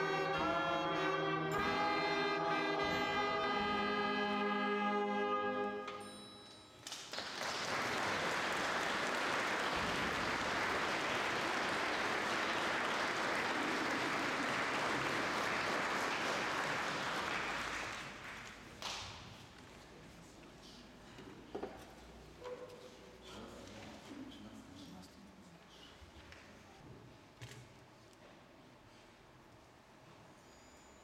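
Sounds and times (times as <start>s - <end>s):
wind band held chord: 0.0s - 6.0s
audience applause: 6.9s - 19.0s.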